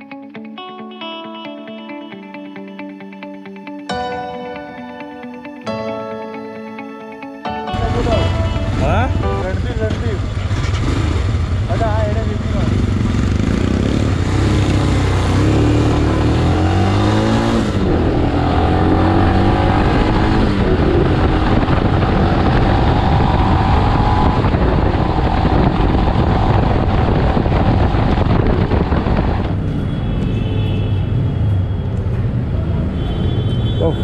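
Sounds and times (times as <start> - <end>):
motorcycle engine accelerating: 7.7 - 29.8
wind rushing over microphone: 12.8 - 30.1.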